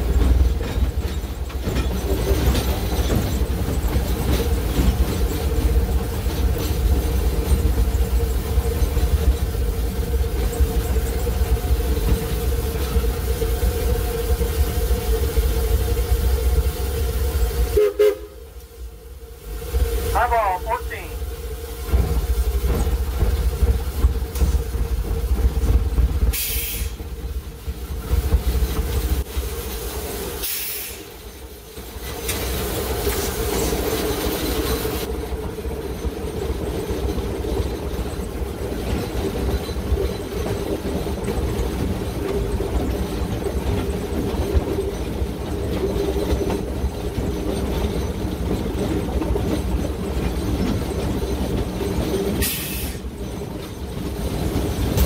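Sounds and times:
locomotive rumble: 0.0 - 55.0
steam hissing: 21.2 - 35.1, 52.4 - 53.2.

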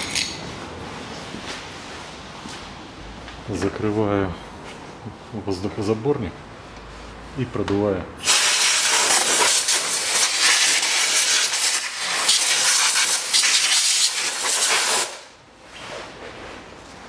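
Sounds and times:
air blow gun hissing: 8.2 - 15.3.

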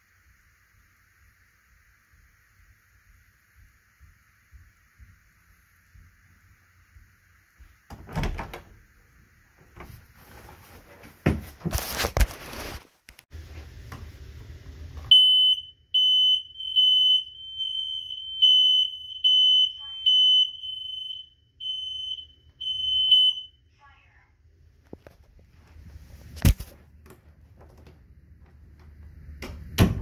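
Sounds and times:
knocks and rustling: 9.6 - 12.2
smoke alarm beeping: 15.1 - 23.6.

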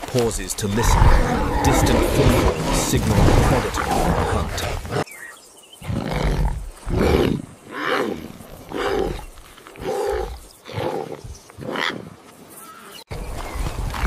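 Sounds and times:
big cat roaring: 0.7 - 5.0.

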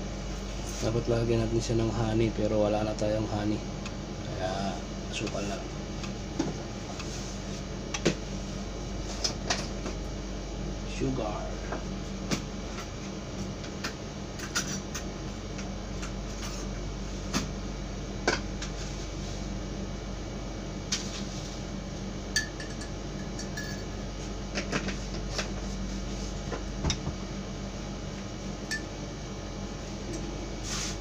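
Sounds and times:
steady low hum: 0.0 - 31.0
spoon clinking ceramic mugs: 22.4 - 23.9.

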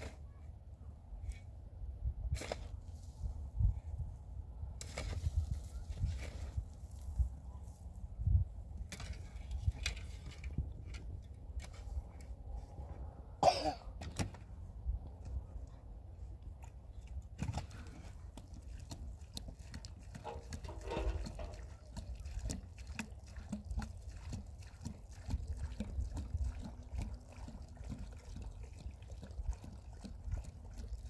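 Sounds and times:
shovel scraping stony soil: 2.3 - 3.2, 4.8 - 7.1
cough-like sound: 13.4 - 14.0.

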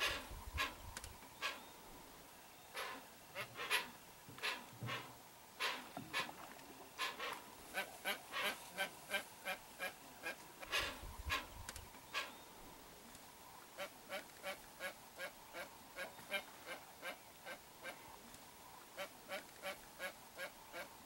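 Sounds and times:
bird giving hoarse calls: 0.0 - 0.8, 1.4 - 1.7, 2.7 - 12.4.

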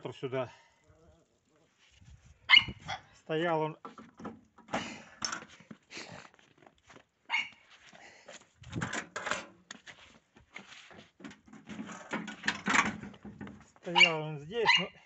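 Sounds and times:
dog barking: 2.5 - 3.1, 7.3 - 7.6, 13.9 - 15.0.

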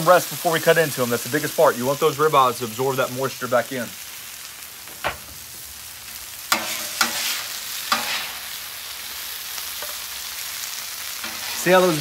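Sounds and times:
vegetables sizzling on griddle: 0.0 - 12.0
metal spatula scraping griddle: 6.5 - 8.6, 11.2 - 12.0.

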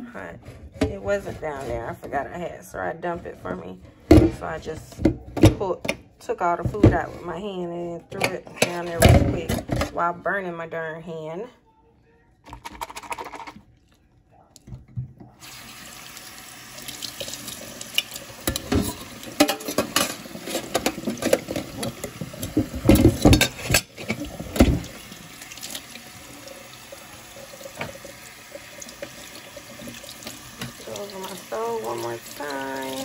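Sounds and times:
pot scrubbed with splashing: 15.4 - 33.0
tap water running into sink: 15.4 - 33.0.

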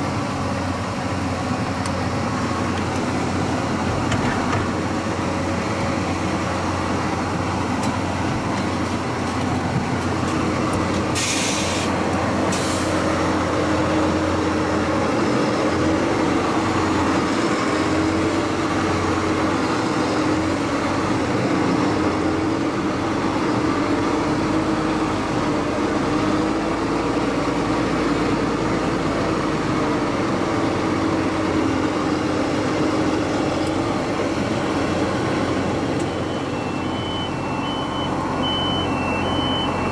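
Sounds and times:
short hisses: 11.2 - 11.9.

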